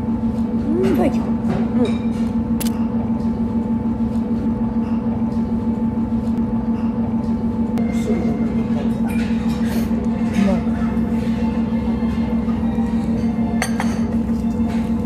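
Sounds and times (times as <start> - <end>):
low droning hum: 0.0 - 15.0.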